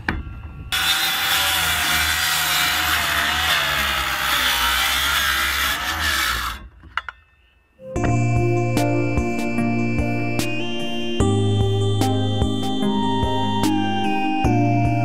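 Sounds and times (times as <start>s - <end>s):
circular saw cutting wood: 0.7s - 6.7s.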